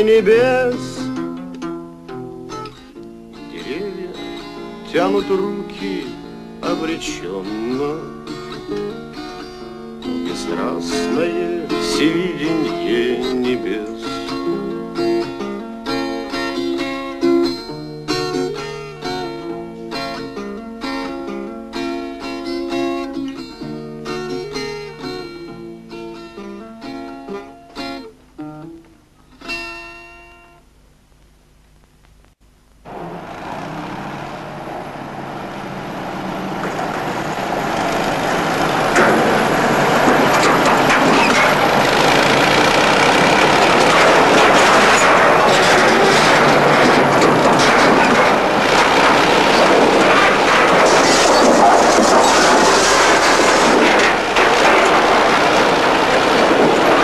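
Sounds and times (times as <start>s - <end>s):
acoustic guitar music: 0.0s - 30.7s, 32.8s - 57.0s
heavy machinery noise: 32.9s - 57.0s.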